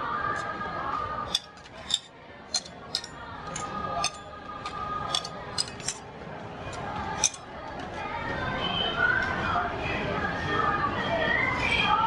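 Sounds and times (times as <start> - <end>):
metal spatulas scraping on steel plate: 1.3 - 6.1, 7.2 - 7.5.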